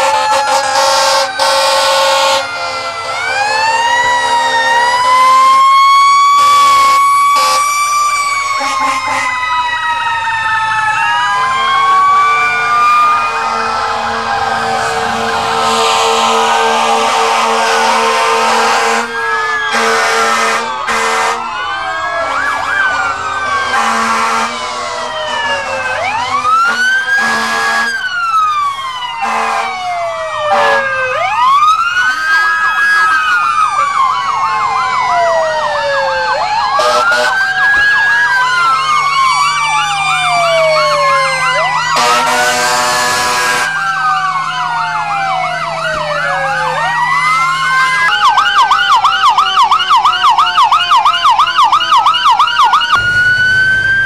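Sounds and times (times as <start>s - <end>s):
air horn blasts: 0.0s - 5.5s, 6.4s - 7.7s, 8.6s - 9.4s, 11.5s - 19.1s, 19.7s - 21.4s, 23.6s - 28.0s, 29.2s - 29.8s, 30.5s - 30.9s, 36.8s - 37.4s, 41.9s - 43.7s
fire truck sirens wailing: 0.0s - 54.0s.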